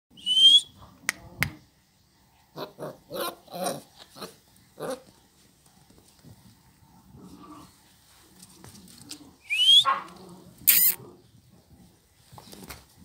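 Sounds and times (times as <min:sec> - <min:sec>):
puppies growling and yapping: 0:02.6 - 0:05.1.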